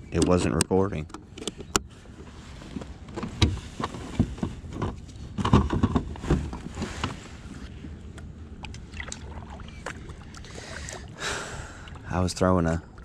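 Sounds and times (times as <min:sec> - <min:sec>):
knocks and thumps from kayak hull: 0:03.1 - 0:07.2.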